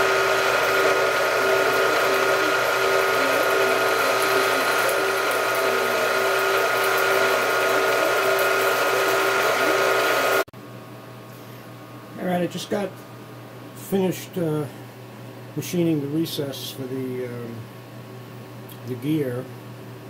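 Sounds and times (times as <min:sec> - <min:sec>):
drill press whining: 0:00.0 - 0:10.5.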